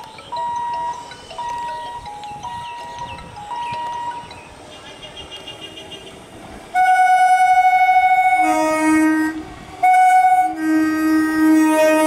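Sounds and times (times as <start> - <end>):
two-tone train horn: 6.7 - 12.0.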